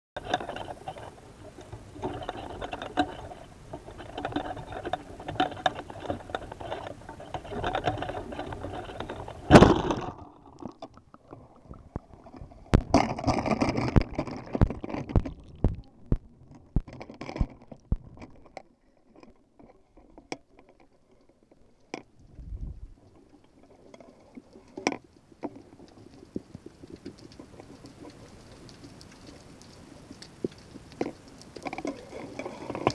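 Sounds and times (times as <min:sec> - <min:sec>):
clicking and rustling: 0:00.2 - 0:11.0, 0:11.9 - 0:21.2, 0:23.9 - 0:32.9
underwater bubbling: 0:00.2 - 0:19.6, 0:21.1 - 0:32.9
underwater knocks: 0:12.7 - 0:18.3.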